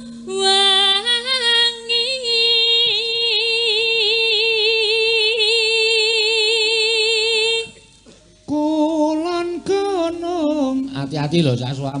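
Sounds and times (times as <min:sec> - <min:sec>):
woman singing a long note: 0:00.0 - 0:07.8.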